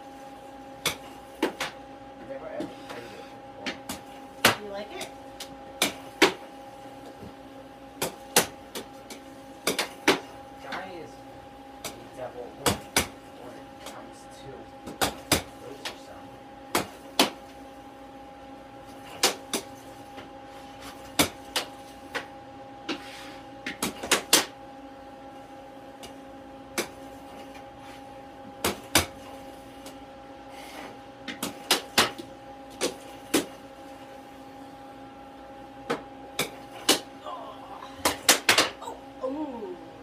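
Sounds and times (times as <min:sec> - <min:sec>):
air hockey puck and mallets clacking: 0:38.1 - 0:38.8.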